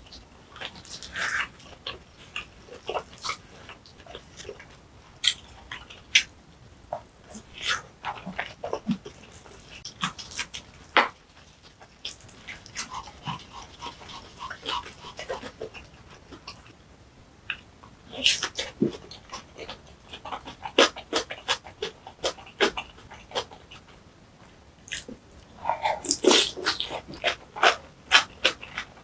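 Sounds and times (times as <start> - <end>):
wet chewing and lip-smacking: 7.3 - 16.8, 24.9 - 29.0.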